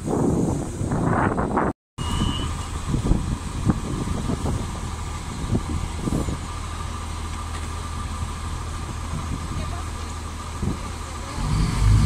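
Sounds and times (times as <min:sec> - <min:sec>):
diesel railcar engine idling: 0:02.0 - 0:12.0.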